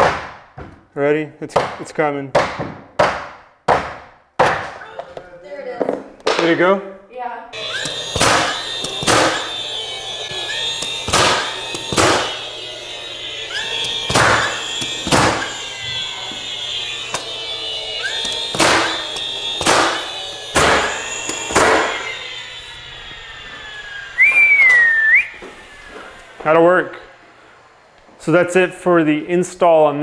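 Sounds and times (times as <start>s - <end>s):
nail gun firing: 7.7s - 9.6s, 10.3s - 12.4s, 13.5s - 15.7s, 18.0s - 22.1s
short whistle: 24.2s - 25.4s.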